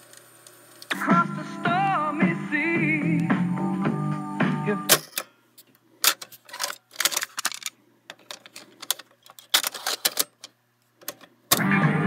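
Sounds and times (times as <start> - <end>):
music from cassette player: 0.8 - 5.0, 11.5 - 12.0
cassette clicks and rattles: 6.0 - 11.7.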